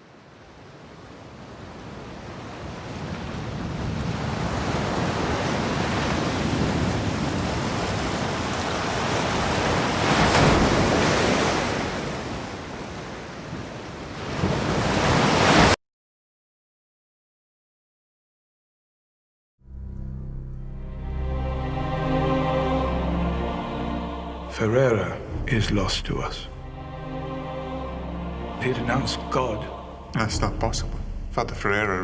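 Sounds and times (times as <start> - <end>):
waves breaking: 0.0 - 15.8
wind: 0.0 - 15.8.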